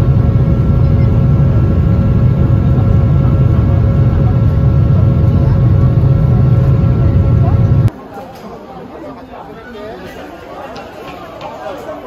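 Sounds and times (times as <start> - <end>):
jet engine rumble: 0.0 - 7.9.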